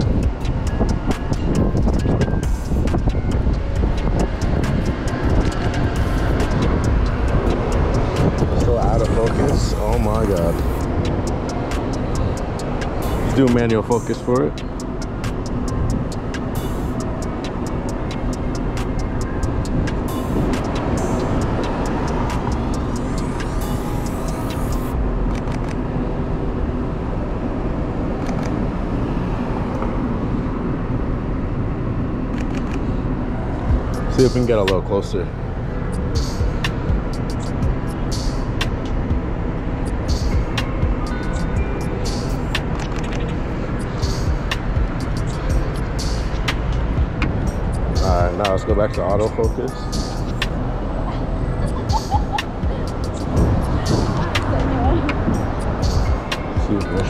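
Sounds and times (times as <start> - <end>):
wind buffeting microphone: 0.0 - 14.2, 39.0 - 57.0
passing traffic: 0.0 - 57.0.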